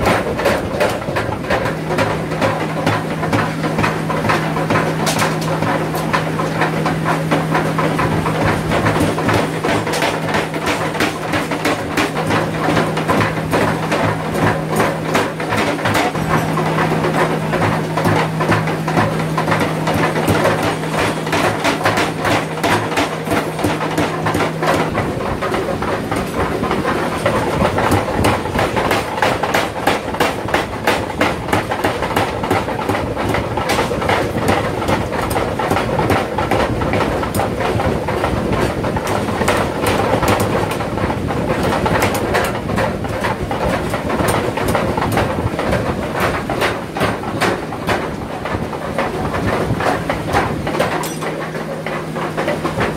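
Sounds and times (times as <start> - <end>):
power hammer striking steel: 50.3 - 51.7.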